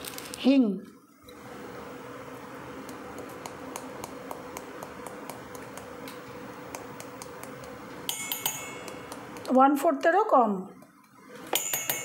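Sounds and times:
faint hum: 0:00.0 - 0:12.0.

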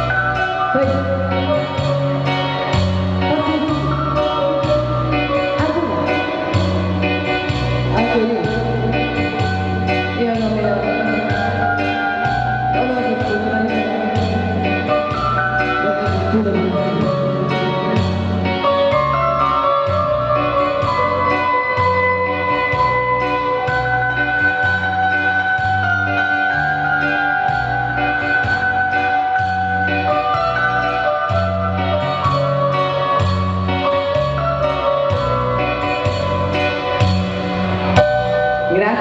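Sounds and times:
woman singing: 0:03.2 - 0:07.2, 0:07.9 - 0:18.1.

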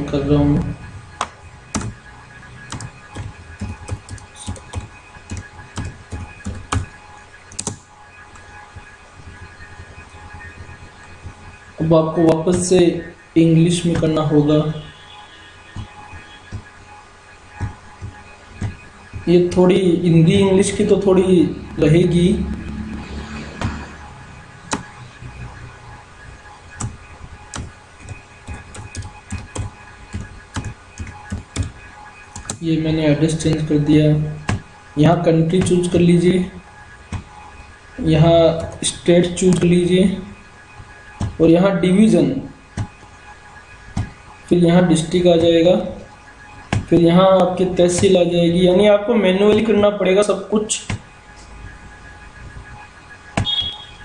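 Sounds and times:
keyboard typing: 0:00.5 - 0:09.5, 0:15.6 - 0:16.8, 0:17.5 - 0:25.4, 0:26.7 - 0:43.1, 0:43.9 - 0:51.8.

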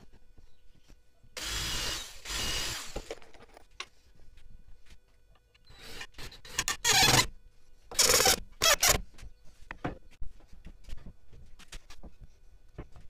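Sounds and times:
cordless drill driving into wood: 0:01.4 - 0:03.2.

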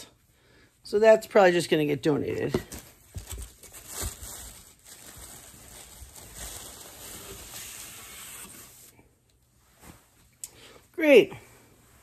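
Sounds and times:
fabric rustling: 0:02.6 - 0:10.4.

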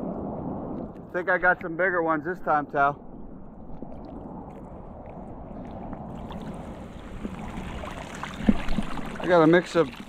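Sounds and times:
water sloshing and trickling: 0:03.6 - 0:10.0
water splashing and dripping: 0:03.6 - 0:10.0.

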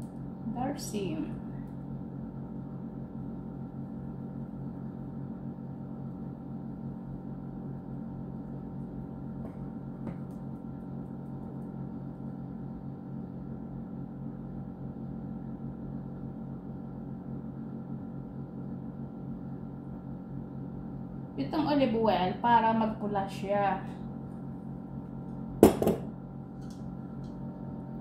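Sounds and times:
steady machine hum: 0:00.0 - 0:28.0.

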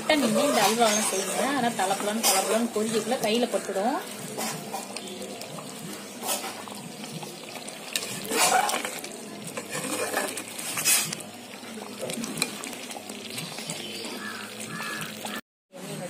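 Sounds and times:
mixture bubbling: 0:00.0 - 0:15.4
ladle scraping metal pan: 0:00.1 - 0:03.3, 0:04.2 - 0:05.1, 0:06.1 - 0:06.8, 0:07.9 - 0:11.3.

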